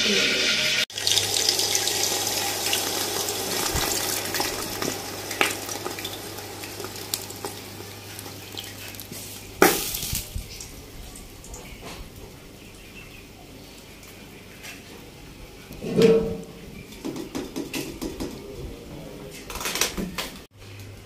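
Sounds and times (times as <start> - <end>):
syrup pouring and splashing: 0.9 - 10.6.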